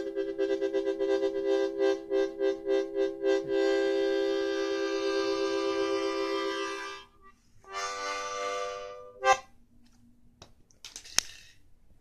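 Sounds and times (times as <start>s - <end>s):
music chords: 0.0s - 9.5s.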